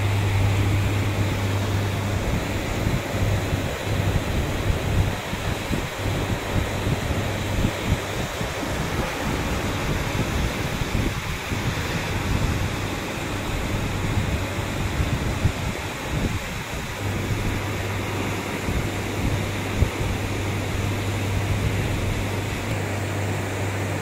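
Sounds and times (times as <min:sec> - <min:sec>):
floodwater running: 0:00.0 - 0:24.0
heavy rain falling: 0:00.0 - 0:24.0
low steady hum: 0:00.0 - 0:24.0.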